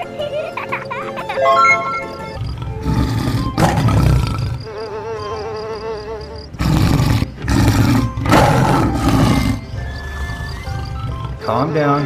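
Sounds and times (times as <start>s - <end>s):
wavering pitched tone: 1.4s - 2.4s
big cat roar: 2.4s - 4.7s, 6.6s - 11.6s.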